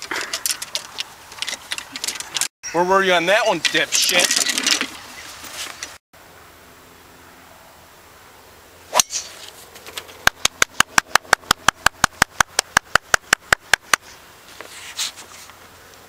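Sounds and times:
golf driver striking ball: 0:08.9 - 0:09.3.

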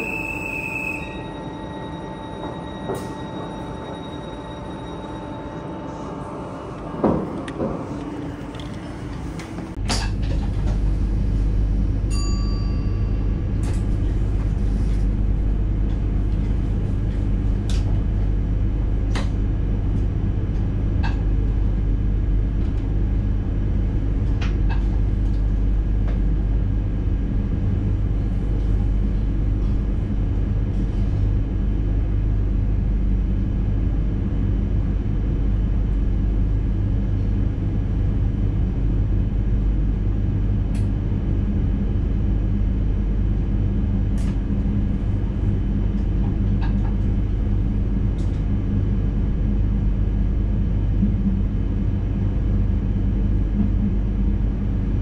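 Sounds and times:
short beep: 0:00.0 - 0:05.8
train running at speed: 0:00.0 - 0:55.0.

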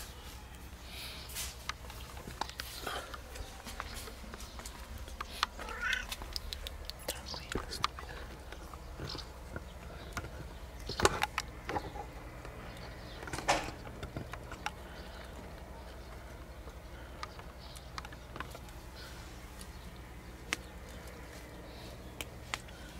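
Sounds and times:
kitten crunching dry kibble: 0:01.4 - 0:13.1.

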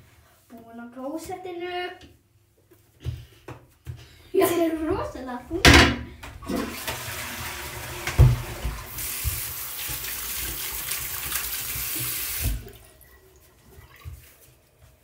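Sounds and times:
toilet flushing: 0:05.8 - 0:14.6.

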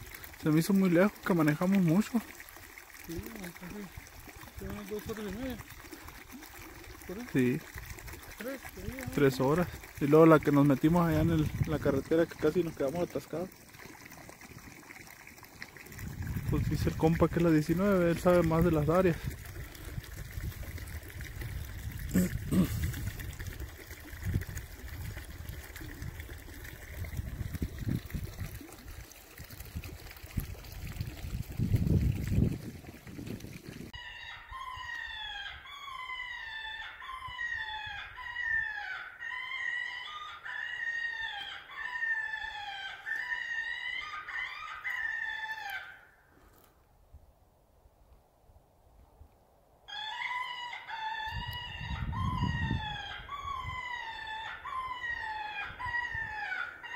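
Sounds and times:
stream water trickling: 0:00.0 - 0:34.0, 0:46.4 - 0:46.7
wind buffeting microphone: 0:16.0 - 0:17.3, 0:18.6 - 0:28.6, 0:29.4 - 0:34.0, 0:51.3 - 0:53.8.

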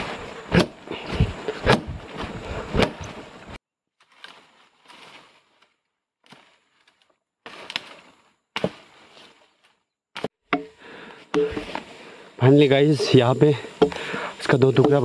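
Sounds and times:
blade chopping into dry wood: 0:00.5 - 0:03.2, 0:08.6 - 0:08.9.

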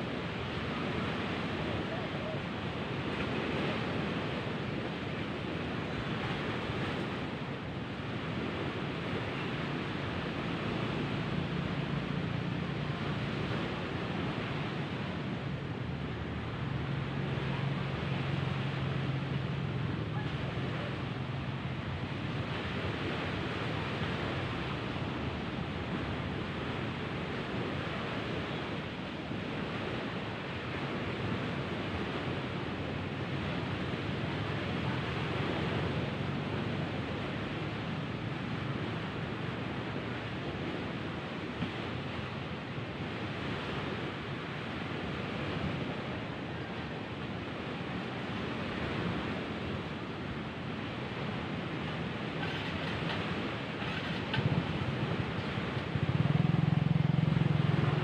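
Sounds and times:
sea surf: 0:00.0 - 0:58.0
wind: 0:00.0 - 0:58.0.

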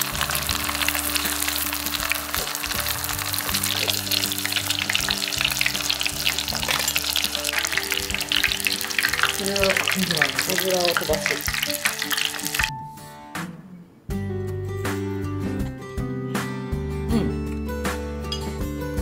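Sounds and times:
food deep-frying in hot oil: 0:00.0 - 0:12.7.

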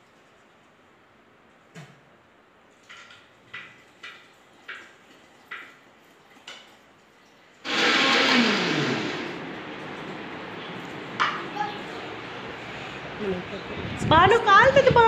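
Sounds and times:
electric mixer grinder running: 0:07.7 - 0:11.2.

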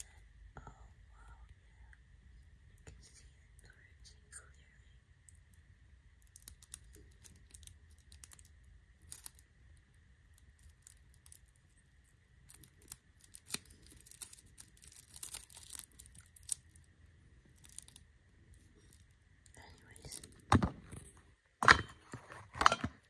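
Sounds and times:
plastic wrapper crinkling: 0:06.2 - 0:09.5, 0:10.3 - 0:19.1.

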